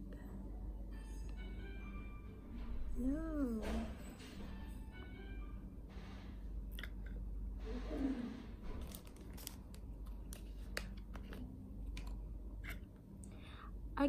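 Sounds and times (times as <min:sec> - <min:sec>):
plastic bottle crinkling: 0:08.8 - 0:11.4.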